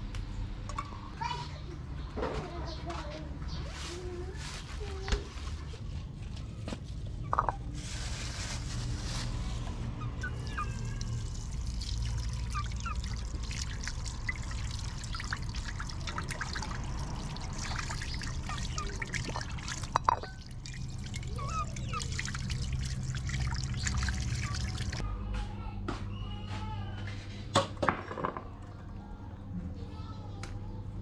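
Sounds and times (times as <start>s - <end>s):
tap water running: 10.2s - 25.0s.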